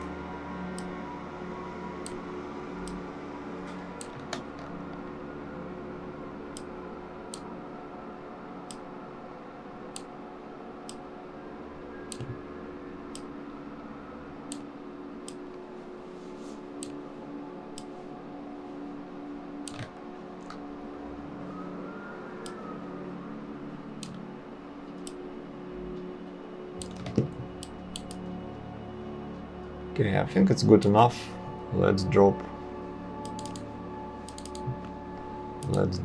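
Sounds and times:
steady low hum: 0.0 - 36.0
computer mouse clicking: 12.1 - 12.3, 19.6 - 19.9, 24.0 - 24.2, 26.8 - 28.2, 33.2 - 33.7, 34.3 - 34.9.

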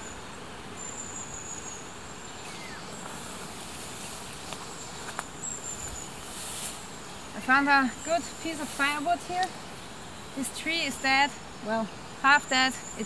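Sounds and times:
crickets trilling: 0.0 - 13.0
footsteps through tall vegetation: 2.9 - 7.1, 8.0 - 10.4.

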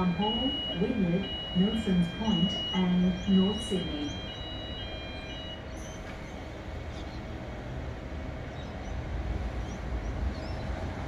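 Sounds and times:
faint steady hum: 0.0 - 5.8.

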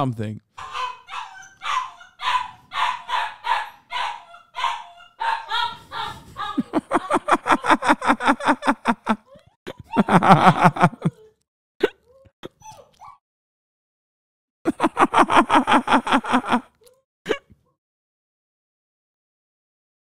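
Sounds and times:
man laughing: 5.9 - 9.2, 9.9 - 11.2, 14.7 - 16.7.

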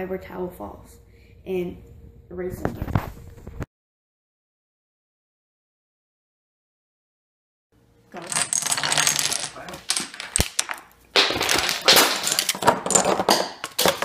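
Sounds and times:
domino knock: 8.2 - 14.0
dominoes toppling: 8.2 - 14.0.

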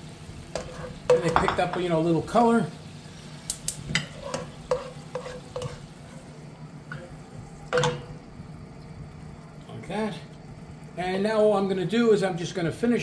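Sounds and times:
spatula scraping a pan: 0.5 - 1.8, 3.9 - 7.1
water bubbling in a pan: 2.3 - 12.4.

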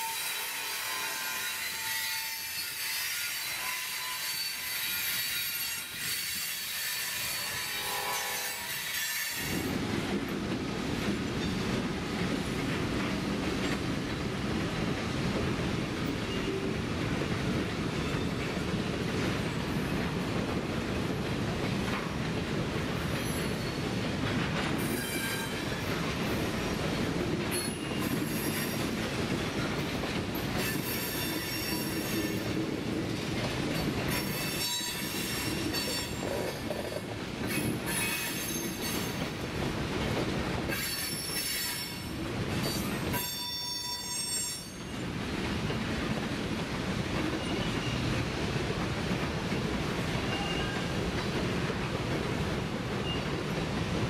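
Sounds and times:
train wheels squealing on rails: 0.0 - 9.8, 11.3 - 11.8, 16.0 - 16.8, 17.9 - 20.1, 23.0 - 26.7, 27.4 - 32.8, 33.7 - 39.4, 40.6 - 45.8, 47.2 - 48.4, 50.0 - 54.0.

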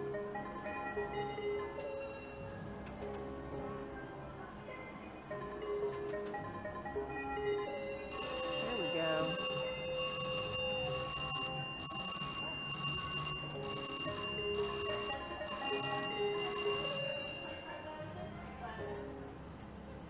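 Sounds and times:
slot machine win bell ringing: 7.5 - 18.0.

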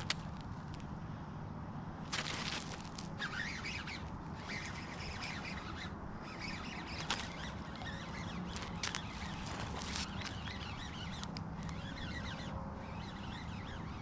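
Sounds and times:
birds chirping: 3.2 - 14.0.

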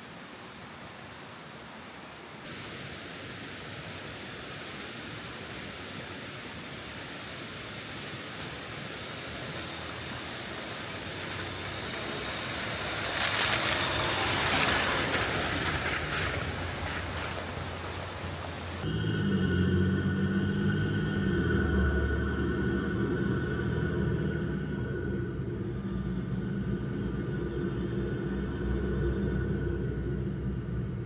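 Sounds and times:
steady hiss: 0.0 - 31.0
vehicle engine passing by: 11.0 - 18.0, 18.7 - 31.0
tyre noise on wet dirt: 11.3 - 18.9.

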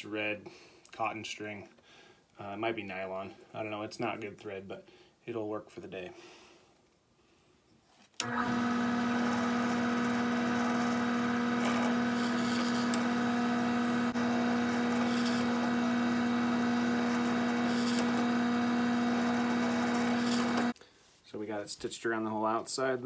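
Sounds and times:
drill press humming: 8.2 - 20.8.

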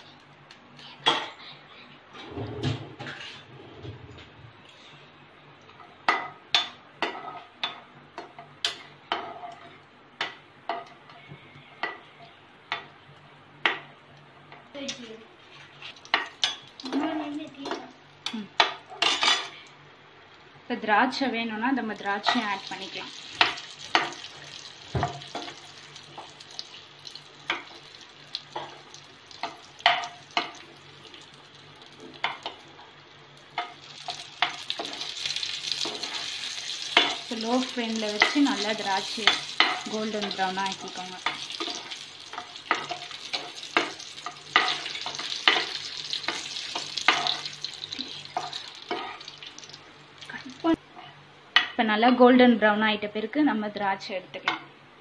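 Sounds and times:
faint sizzle: 0.0 - 54.7
metal spatula scraping a pan: 3.0 - 3.6
metal spatula clacking on frying pan: 41.2 - 47.6.

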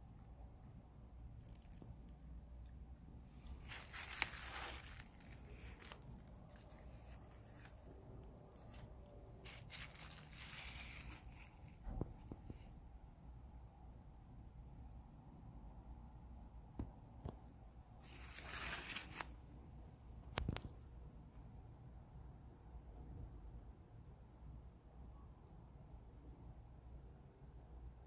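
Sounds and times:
plastic film crinkling: 1.4 - 2.2, 3.3 - 12.6, 18.0 - 19.4.

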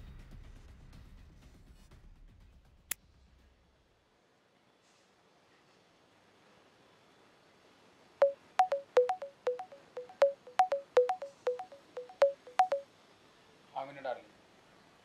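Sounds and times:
short sharp musical notes: 8.2 - 12.8.

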